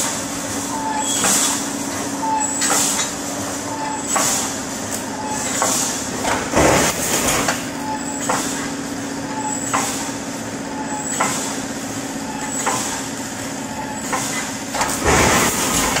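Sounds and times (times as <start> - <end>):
loud burst of machine noise: 0.0 - 8.8, 9.4 - 16.0
welding machine humming: 0.0 - 16.0
machine sharp clack: 1.1 - 1.7, 2.5 - 3.2, 4.0 - 8.7, 9.4 - 10.2, 10.8 - 11.6, 12.4 - 13.1, 13.9 - 16.0.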